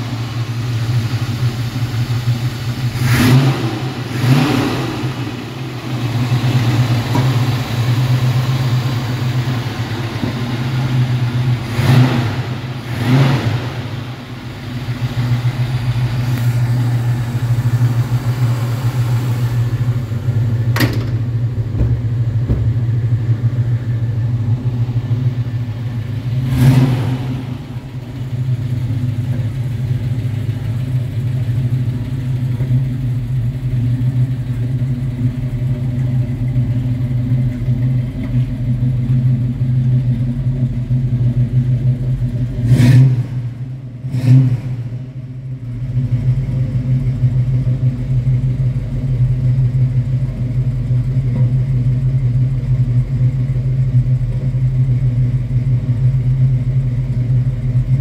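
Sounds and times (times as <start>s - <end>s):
car engine idling: 0.0s - 58.0s
engine revving blips: 3.0s - 5.6s, 11.6s - 14.1s.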